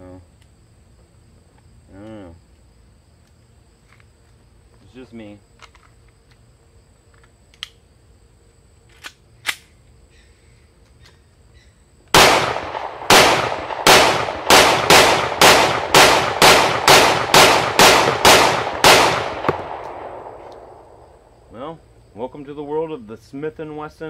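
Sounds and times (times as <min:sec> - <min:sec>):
gun handling clicks: 0:05.5 - 0:06.4, 0:07.1 - 0:07.8, 0:08.9 - 0:09.8, 0:18.4 - 0:20.8
pistol shots: 0:12.1 - 0:21.0.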